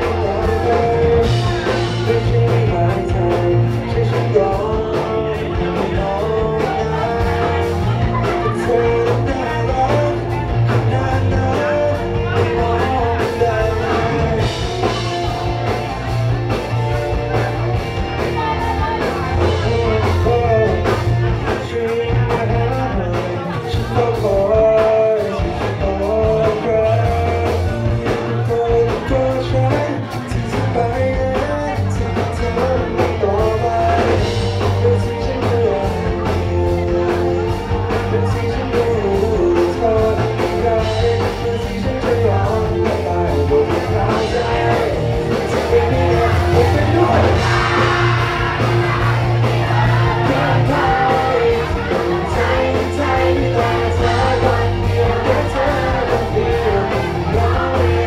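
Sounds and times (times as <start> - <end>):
live rock band: 0.0 - 58.0
person singing: 0.0 - 58.0.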